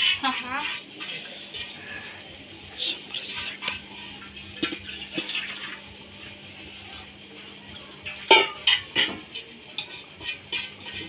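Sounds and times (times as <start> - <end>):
metal pots and spoon clanking: 0.0 - 1.8, 3.6 - 5.8, 7.8 - 11.0
water pouring and splashing from pot: 2.8 - 11.0.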